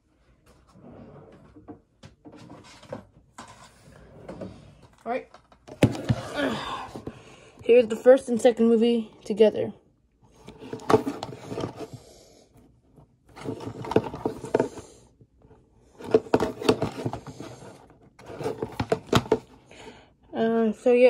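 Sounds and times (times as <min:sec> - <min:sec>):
plastic cases scraping and clicking: 0:10.3 - 0:12.1, 0:13.3 - 0:15.0, 0:15.9 - 0:19.6.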